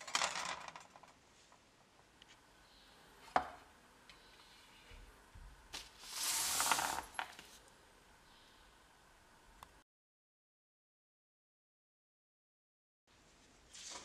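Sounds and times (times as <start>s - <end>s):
wood shavings swept across paper: 5.8s - 7.6s.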